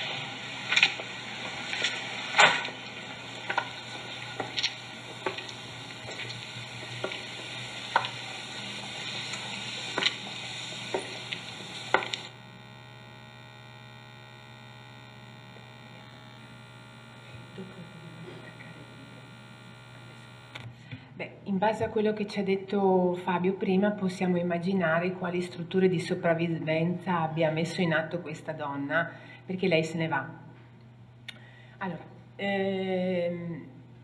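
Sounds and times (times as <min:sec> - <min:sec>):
soundtrack hiss with clicks: 0:00.0 - 0:21.0, 0:30.6 - 0:31.5
faint electrical hum: 0:00.0 - 0:34.0.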